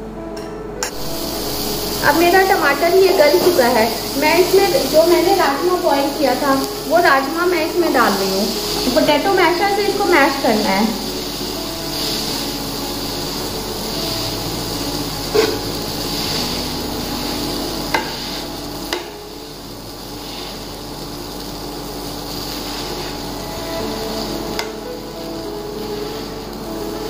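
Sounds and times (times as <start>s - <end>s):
masher knocking on pan: 15.3s - 15.7s, 17.9s - 18.3s.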